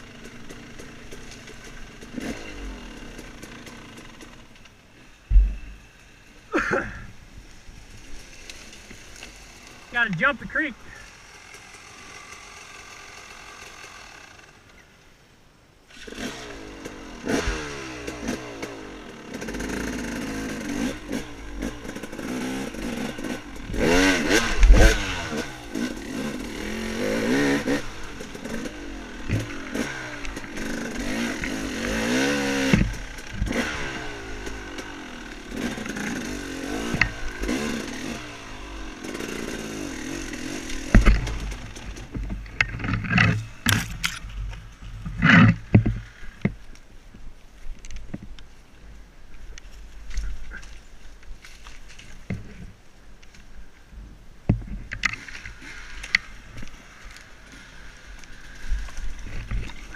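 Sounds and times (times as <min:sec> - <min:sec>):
dirt bike engine revving: 0:00.0 - 0:07.0, 0:07.8 - 0:14.7, 0:15.9 - 0:46.6, 0:54.8 - 0:59.9
heavy thumps: 0:05.3 - 0:05.8, 0:40.8 - 0:44.1.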